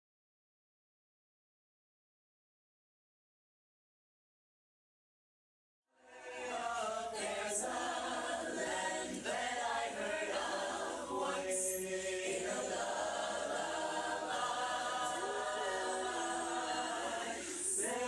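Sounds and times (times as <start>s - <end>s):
choir singing in harmony: 6.0s - 18.0s.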